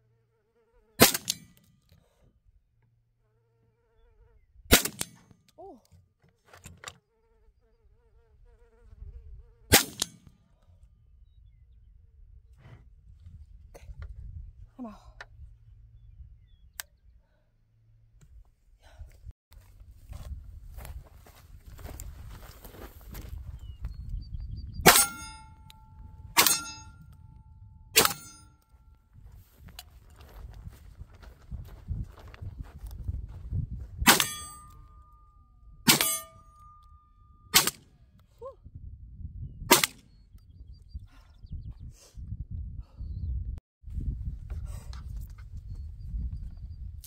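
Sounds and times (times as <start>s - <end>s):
fly buzzing: 0.0s - 1.0s, 3.2s - 4.5s, 6.9s - 9.7s
shotgun shots: 1.0s - 1.6s, 4.7s - 5.3s, 9.7s - 10.2s, 24.8s - 25.5s, 28.0s - 28.4s, 34.1s - 34.6s, 35.9s - 36.4s, 37.5s - 37.9s, 39.7s - 40.0s
steel target ringing clang: 24.8s - 25.8s, 26.4s - 27.0s, 28.0s - 28.5s, 34.1s - 35.2s, 35.9s - 37.8s.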